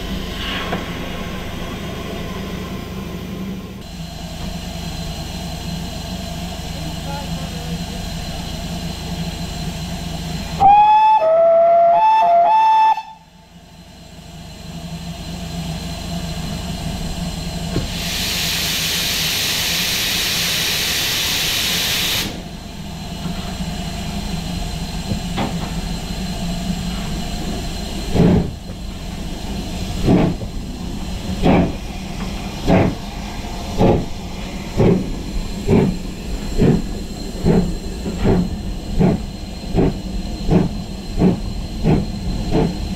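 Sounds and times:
steam locomotive exhaust beats: 0:00.0 - 0:42.9
steam whistle blasts: 0:10.6 - 0:13.3
steam hissing: 0:17.4 - 0:42.9.

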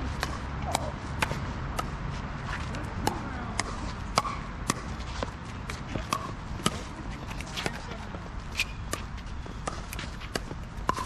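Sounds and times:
paddles hitting plastic ball: 0:08.8 - 0:11.0.

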